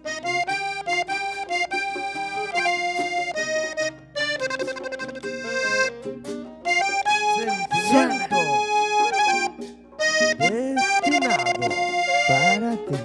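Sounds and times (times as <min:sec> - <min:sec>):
accordion melody: 0:00.0 - 0:13.0.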